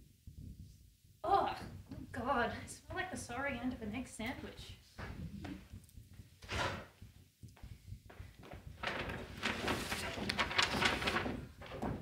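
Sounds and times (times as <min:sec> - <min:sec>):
jacket rustling: 0:08.2 - 0:12.0
foil gift bag crinkling: 0:08.8 - 0:11.9.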